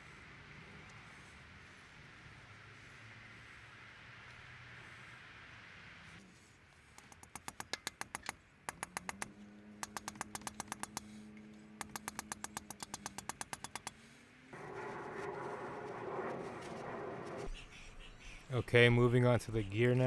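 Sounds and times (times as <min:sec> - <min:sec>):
rapid sharp clicking: 0:07.0 - 0:11.1, 0:11.8 - 0:14.0
steady low hum: 0:14.5 - 0:19.8.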